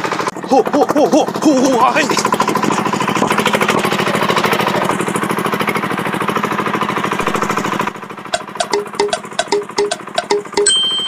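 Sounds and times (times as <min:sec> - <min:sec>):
cultivator engine running: 0:00.0 - 0:11.0
short tonal beeps: 0:07.2 - 0:11.0
ticking sound effect: 0:07.2 - 0:11.0.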